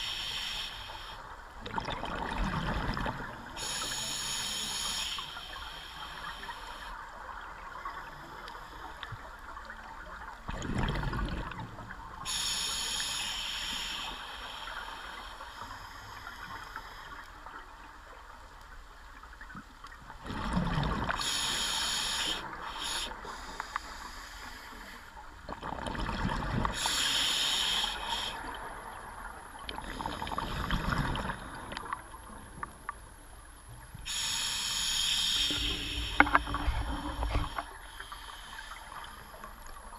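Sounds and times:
regulator hissing inhalations: 0.0 - 1.2, 3.6 - 7.0, 12.3 - 17.2, 21.2 - 25.2, 26.8 - 28.6, 34.0 - 39.6.

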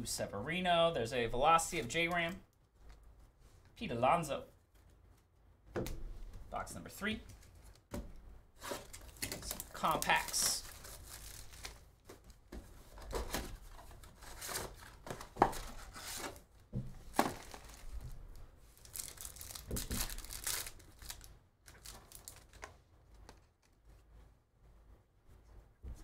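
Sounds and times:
cardboard rustling: 7.2 - 22.7
wrappers crinkling: 8.6 - 15.0, 17.1 - 22.7.

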